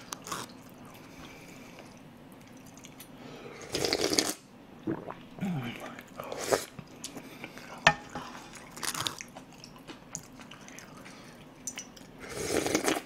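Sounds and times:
chewing with wet mouth noises: 0.0 - 3.2, 6.7 - 13.0
slurping from a spoon: 3.6 - 5.2, 12.2 - 13.0.

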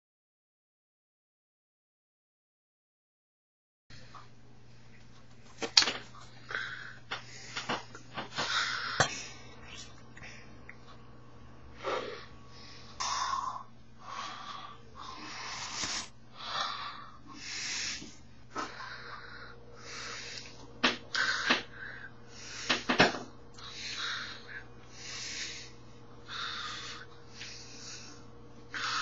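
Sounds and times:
mouth noises: 9.6 - 10.8.

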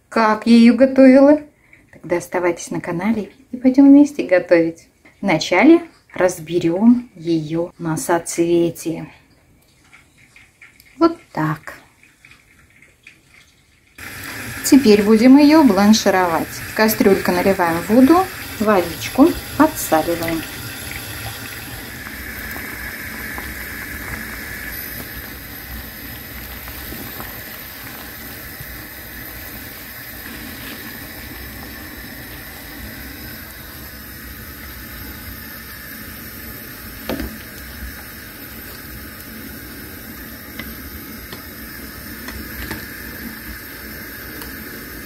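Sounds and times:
water hissing toward boil: 14.0 - 45.0.

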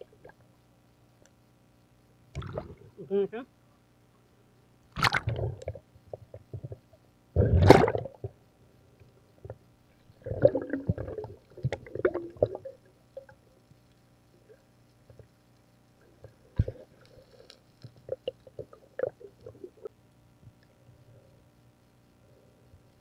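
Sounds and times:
water bubbling and gurgling: 2.3 - 3.0, 5.0 - 8.4, 10.2 - 13.4, 18.0 - 19.9
small clicks: 16.6 - 19.6.

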